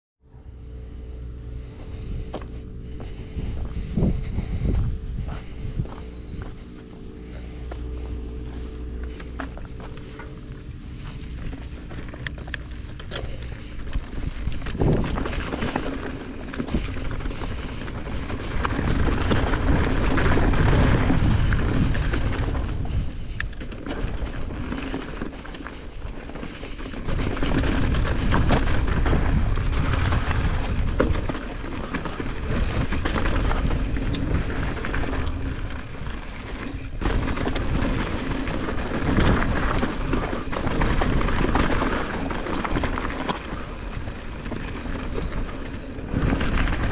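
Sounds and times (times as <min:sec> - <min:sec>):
wind buffeting microphone: 0:00.7 - 0:46.9
bike tyres crunching on gravel: 0:01.7 - 0:46.9
bike clattering over stones: 0:11.0 - 0:46.9.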